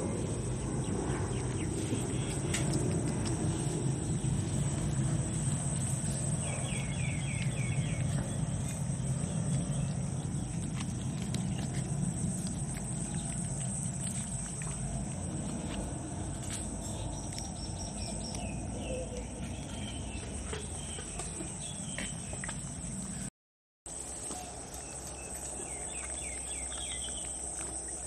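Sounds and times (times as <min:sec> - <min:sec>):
puppies eating kibble: 0:00.0 - 0:23.3, 0:23.9 - 0:28.0.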